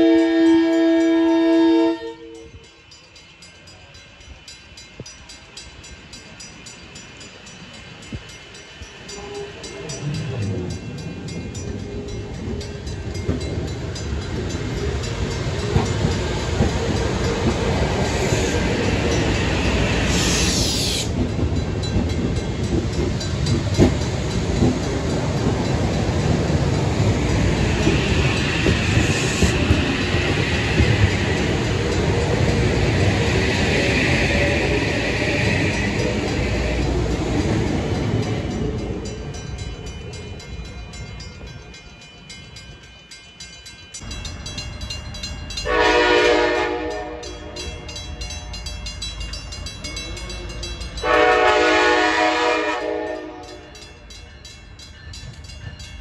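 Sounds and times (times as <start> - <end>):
train rumbling past: 0.0 - 56.0
high-pitched hiss: 14.6 - 21.2.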